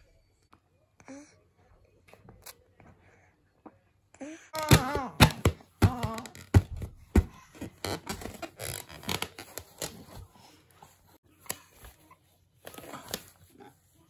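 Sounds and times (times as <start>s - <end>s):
hands slapping plastic ball: 4.6s - 7.4s.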